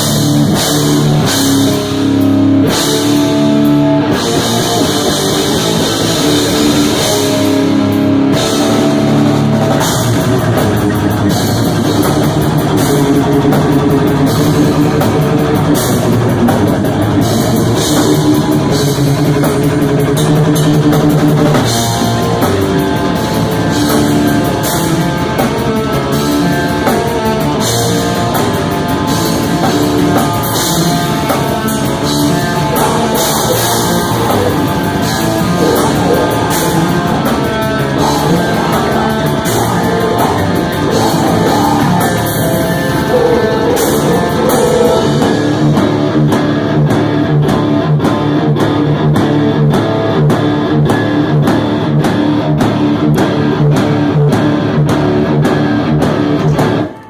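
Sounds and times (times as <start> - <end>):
bass guitar: 0.0 - 57.0
distorted electric guitar: 0.0 - 57.0
pounding drum kit: 0.0 - 57.0.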